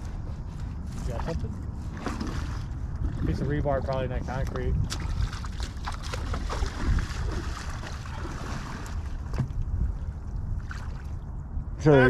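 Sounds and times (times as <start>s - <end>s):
wind rumbling on microphone: 0.0s - 12.0s
river water lapping: 0.3s - 11.5s.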